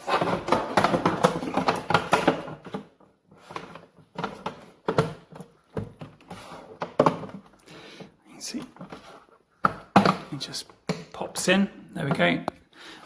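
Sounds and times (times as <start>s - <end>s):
plastic panel clattering and scraping: 0.0s - 7.5s.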